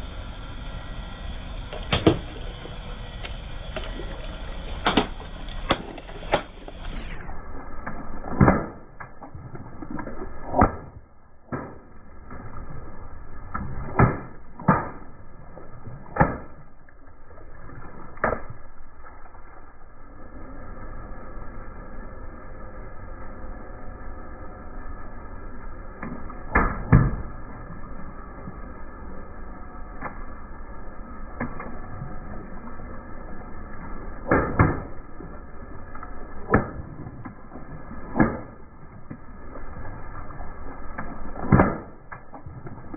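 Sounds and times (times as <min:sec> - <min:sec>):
water balloons popping with splashing: 0:01.6 - 0:07.0, 0:07.8 - 0:12.6, 0:13.4 - 0:19.4, 0:26.0 - 0:27.5, 0:34.0 - 0:42.9.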